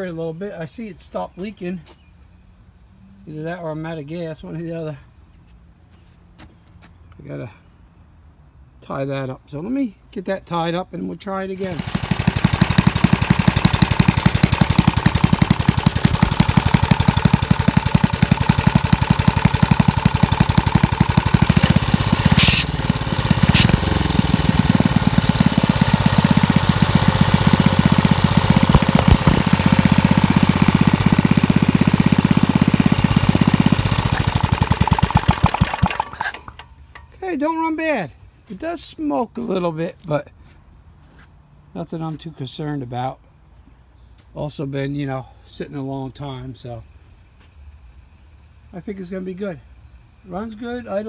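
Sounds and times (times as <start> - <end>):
small engine running: 11.6 - 36.7
sharp clicks: 28.2 - 29.6.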